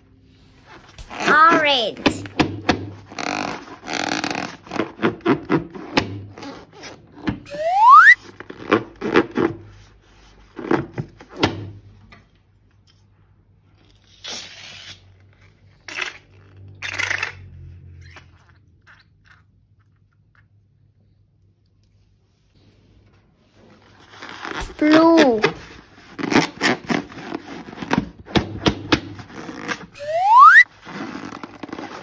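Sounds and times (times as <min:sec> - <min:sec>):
rubber balloons squeaking: 0:00.9 - 0:09.7, 0:24.2 - 0:32.0.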